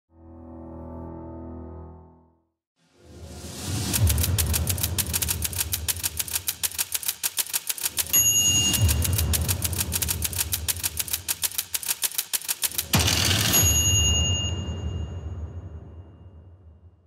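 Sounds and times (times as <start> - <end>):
typewriter key clatter: 3.9 - 14.5
typewriter bell ding: 4.5 - 15.8.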